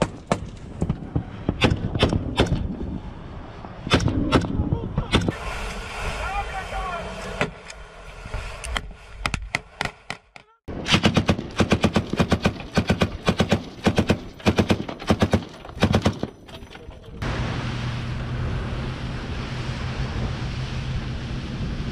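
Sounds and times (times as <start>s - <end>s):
wind noise: 0.0s - 9.8s, 16.8s - 21.9s
boat engine drone: 5.4s - 8.6s, 17.2s - 21.9s
machine gun firing: 10.8s - 16.3s.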